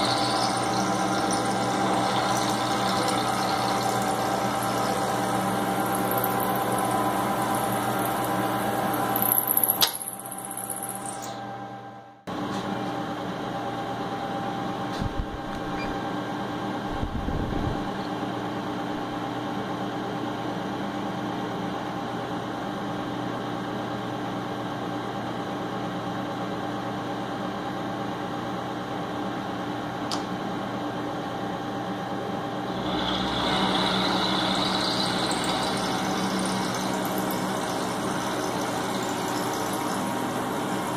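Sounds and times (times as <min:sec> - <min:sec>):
milling machine motor humming: 0:00.0 - 0:11.2, 0:32.6 - 0:40.9.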